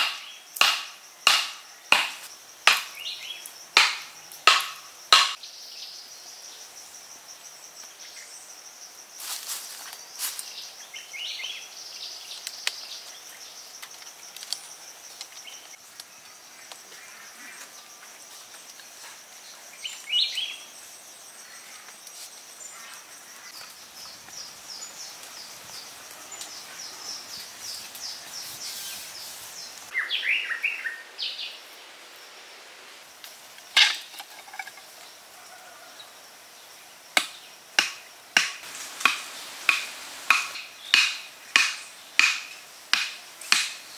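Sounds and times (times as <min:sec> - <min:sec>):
sharp knocks: 0:00.0 - 0:02.9, 0:03.8 - 0:05.4.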